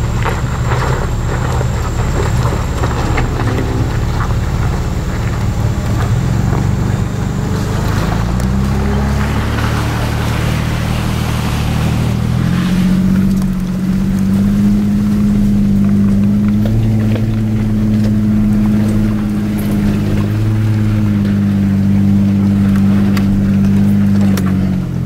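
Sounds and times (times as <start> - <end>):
engine pulling under load: 0.0 - 25.0.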